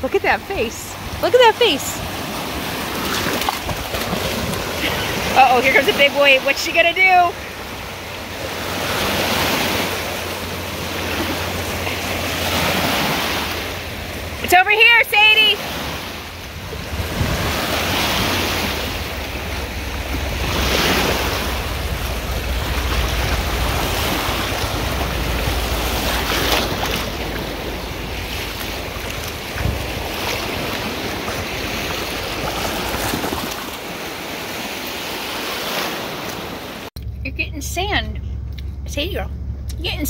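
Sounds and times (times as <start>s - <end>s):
waves washing onto sandy shore: 0.0s - 36.9s
wind buffeting microphone: 15.6s - 34.5s.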